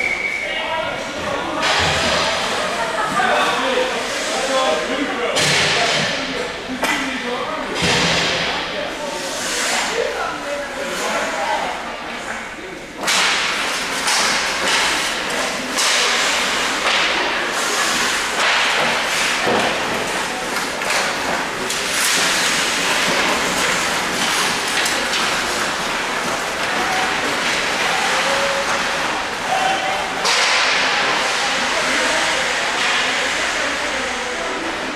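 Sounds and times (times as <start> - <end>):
hockey sticks and puck knocking: 13.0 - 31.6
skates scraping ice: 13.4 - 33.8.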